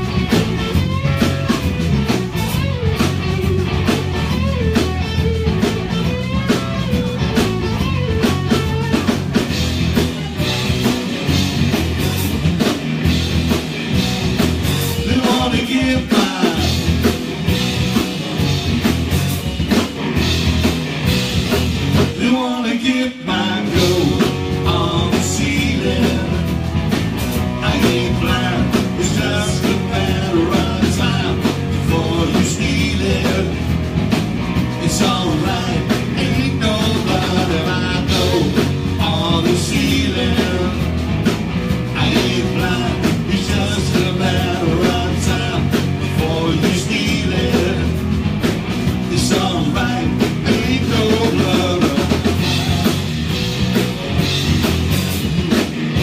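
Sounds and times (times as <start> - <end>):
drum kit: 0.0 - 56.0
electric guitar: 0.0 - 56.0
person singing: 15.0 - 16.8, 22.1 - 26.5, 27.6 - 33.7, 34.8 - 40.9, 42.0 - 48.0, 49.1 - 53.0.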